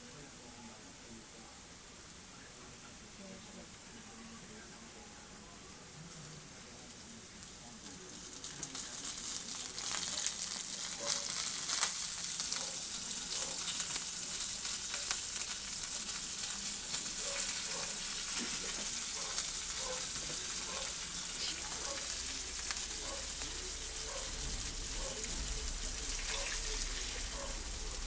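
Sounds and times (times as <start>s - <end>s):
meat sizzling in a frying pan: 6.4s - 28.0s
crackles and pops: 6.9s - 28.0s.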